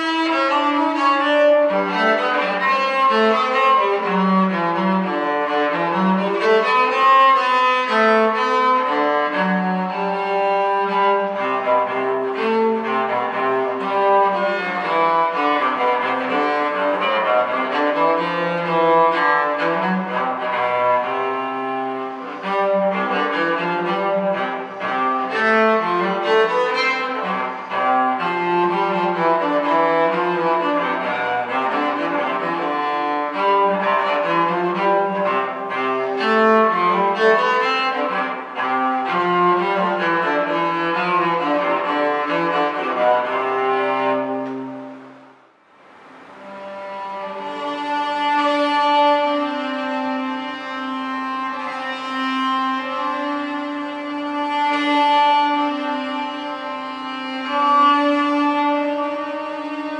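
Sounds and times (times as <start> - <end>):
solo cello playing: 0.0 - 59.9.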